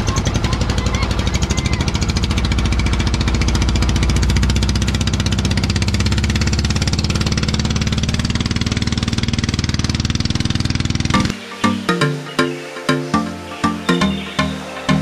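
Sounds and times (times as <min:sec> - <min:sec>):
motorboat engine running: 0:00.0 - 0:11.4.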